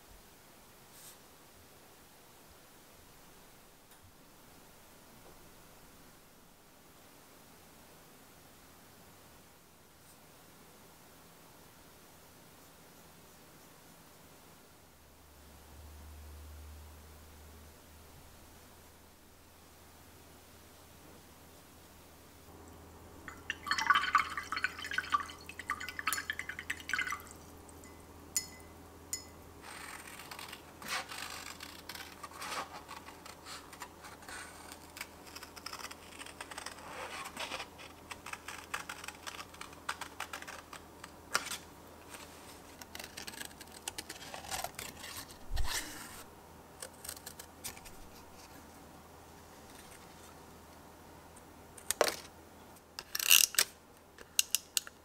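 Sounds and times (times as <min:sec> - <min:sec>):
paintbrush swishing in water jar: 0:23.3 - 0:27.4.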